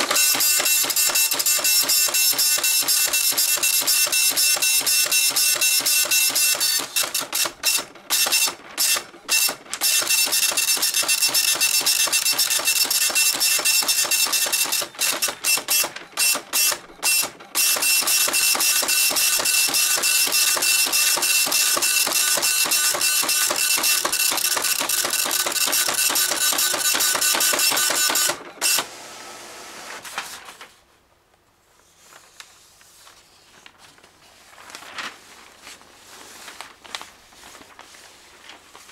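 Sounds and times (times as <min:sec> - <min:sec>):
dot matrix printer buzzing: 0:00.0 - 0:30.0.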